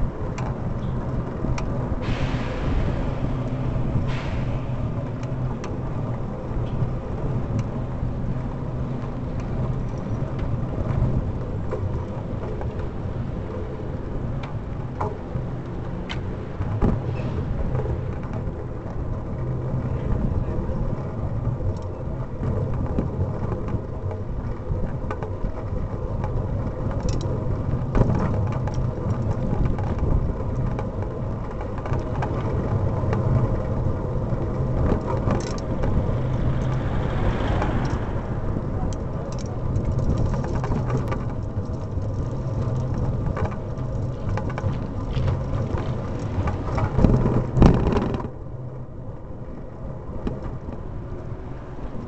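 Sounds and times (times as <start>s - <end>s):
bicycle tyres rolling on tarmac: 0.0s - 52.0s
wind on microphone: 0.0s - 52.0s
clicks and knocks from bumps: 38.9s - 48.4s.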